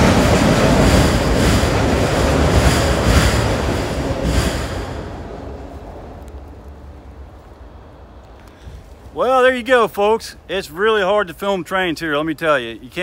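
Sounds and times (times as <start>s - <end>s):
freight train rumbling over bridge: 0.0s - 13.0s.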